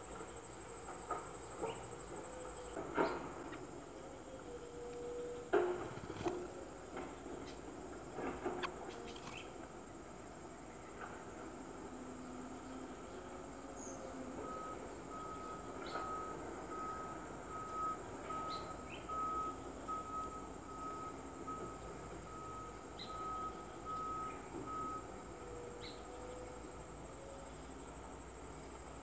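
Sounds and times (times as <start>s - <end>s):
vehicle reversing alarm beeping: 12.8s - 29.0s
faint bird chirps: 17.7s - 26.7s.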